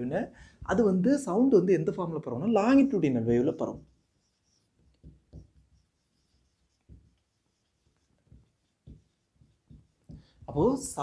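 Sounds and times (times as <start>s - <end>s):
marker writing on whiteboard: 2.9s - 11.0s.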